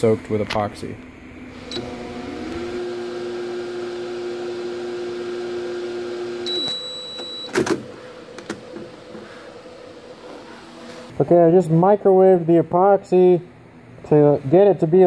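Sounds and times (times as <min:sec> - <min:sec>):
microwave oven humming: 0:01.4 - 0:11.1
microwave beep: 0:01.6 - 0:02.1, 0:05.0 - 0:07.6.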